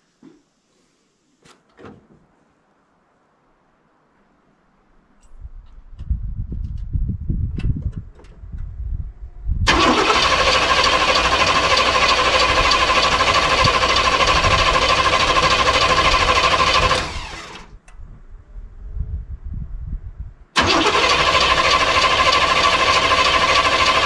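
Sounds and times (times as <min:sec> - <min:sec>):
engine starter cranking: 0:09.7 - 0:17.8, 0:20.6 - 0:24.0.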